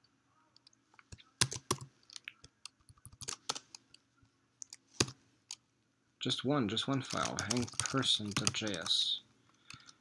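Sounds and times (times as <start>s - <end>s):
computer keyboard clicks: 1.4s - 3.7s, 7.1s - 8.9s.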